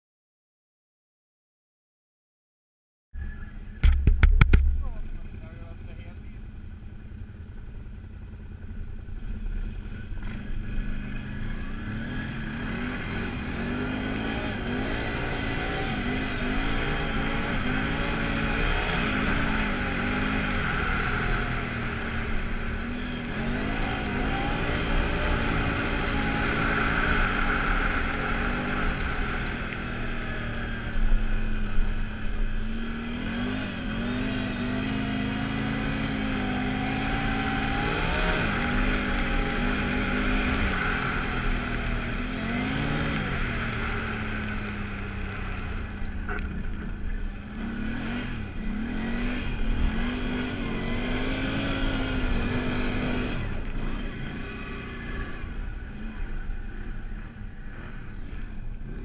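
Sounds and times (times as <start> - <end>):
atv engine revving: 3.2 - 59.0.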